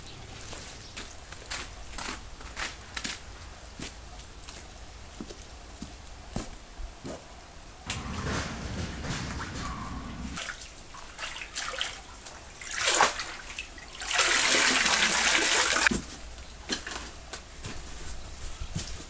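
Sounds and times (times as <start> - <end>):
water splashing and sloshing: 7.9 - 16.0
rush of water: 10.4 - 15.9.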